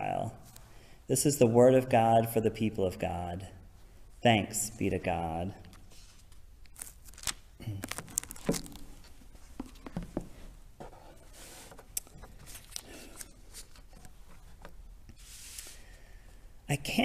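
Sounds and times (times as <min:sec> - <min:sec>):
paper rustling and sliding: 0:05.9 - 0:15.8.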